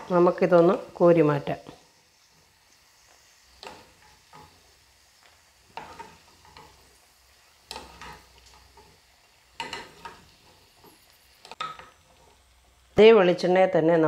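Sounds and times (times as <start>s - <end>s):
oil sizzling: 0.0s - 14.0s
wooden spoon scraping a pan: 1.6s - 12.5s.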